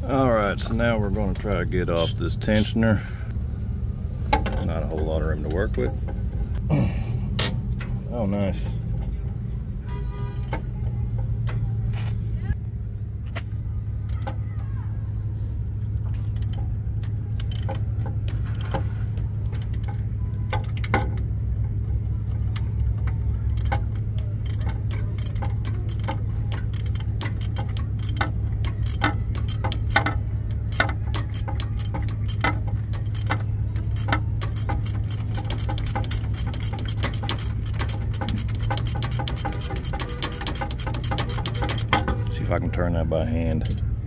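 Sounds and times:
socket ratchet clicking: 14.0s - 14.4s, 16.2s - 21.3s, 22.5s - 42.3s.

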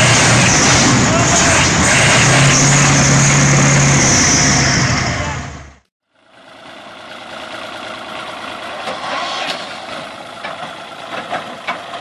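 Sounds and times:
diesel tractor engine running hard: 0.0s - 12.0s
small tractor engine running: 6.0s - 8.9s.

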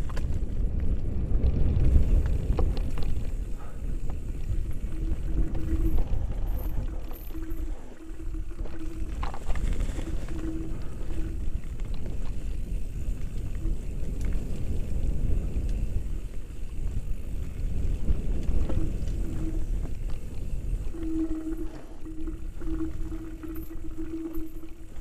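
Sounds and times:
wind on microphone: 0.0s - 25.0s
short low hum: 3.5s - 13.9s, 18.5s - 25.0s.

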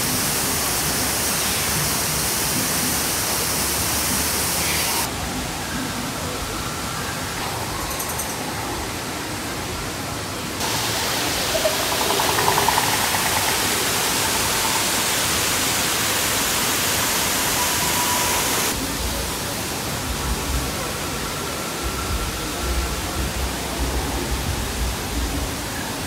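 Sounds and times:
waterfall rushing: 0.0s - 6.0s, 8.4s - 21.8s
faint voices: 0.0s - 26.0s.

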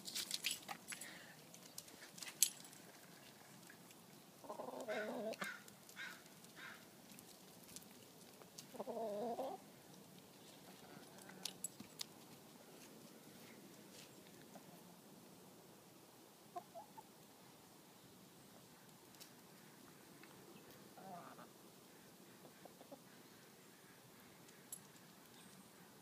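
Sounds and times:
hens clucking: 4.4s - 6.2s, 8.6s - 9.6s, 20.9s - 23.2s
hens drawn-out calls: 4.4s - 6.8s, 20.9s - 21.6s.

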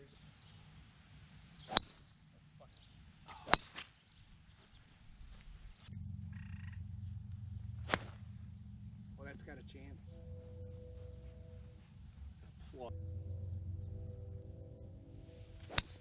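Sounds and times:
golf club striking ball: 1.6s - 2.0s, 3.3s - 4.0s, 6.8s - 8.8s, 13.0s - 16.0s
low steady rumble: 4.0s - 16.0s.

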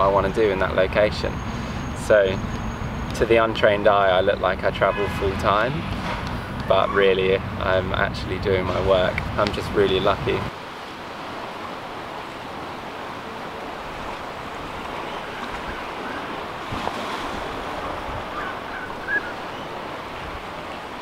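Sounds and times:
ocean surf: 4.9s - 21.0s.

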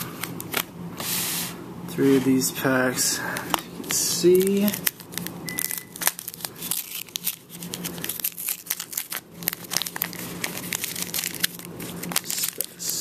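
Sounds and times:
waxed paper tearing and crinkling: 5.9s - 13.0s.

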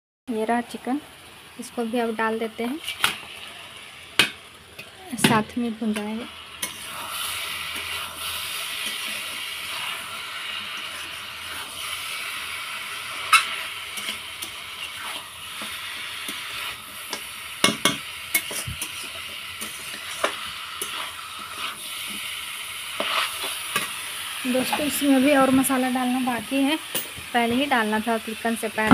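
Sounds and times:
chicken sizzling in oil: 0.3s - 28.9s
spoon scraping and knocking pot: 17.6s - 21.7s.

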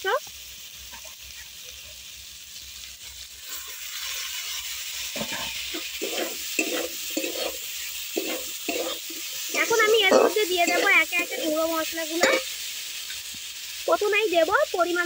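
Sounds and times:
food sizzling in a wok: 0.0s - 15.0s
metal spatula scraping a wok: 3.4s - 13.2s.

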